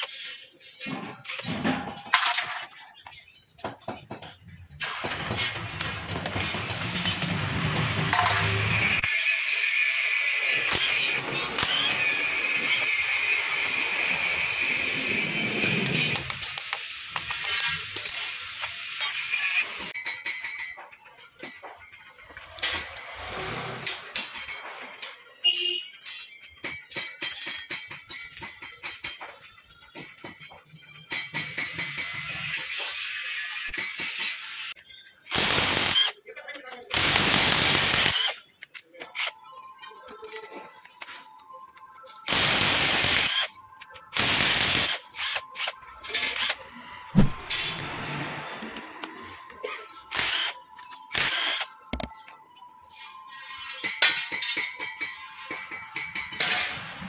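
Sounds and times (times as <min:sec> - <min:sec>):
electric ratchet spinning: 0:35.3 - 0:36.1, 0:37.0 - 0:38.4.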